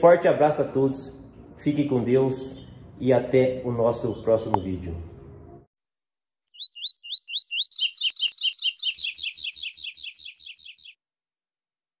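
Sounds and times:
bird singing whistled notes: 6.5s - 11.0s.

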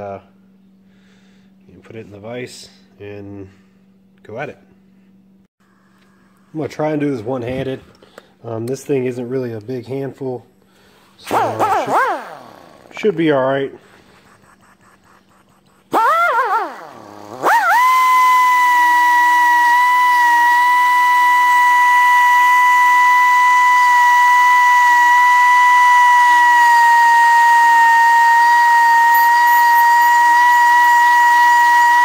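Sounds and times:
die grinder whining: 11.2s - 13.2s, 14.0s - 32.0s.

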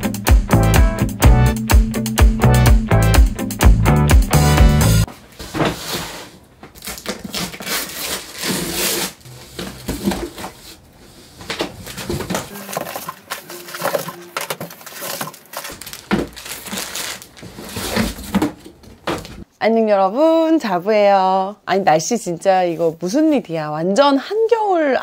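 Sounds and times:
cardboard and plastic rustling: 5.1s - 19.4s.

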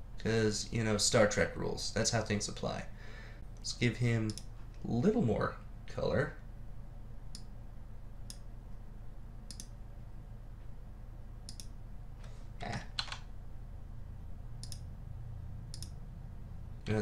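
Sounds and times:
low steady hum: 0.0s - 17.0s
computer mouse clicking: 4.3s - 4.5s, 9.5s - 9.7s, 11.4s - 11.8s, 12.6s - 13.2s, 14.6s - 14.9s, 15.7s - 16.0s.

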